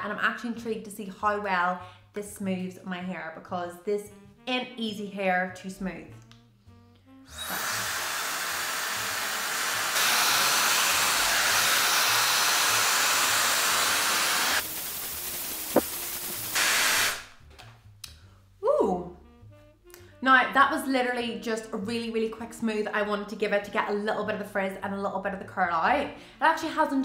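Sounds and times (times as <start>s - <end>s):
click: 6.2s - 6.4s
hot-air styler blowing: 7.3s - 17.4s.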